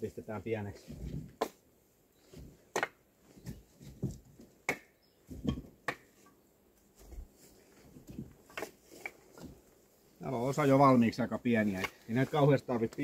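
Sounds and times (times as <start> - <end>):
firewood knocking together: 2.7 - 6.1.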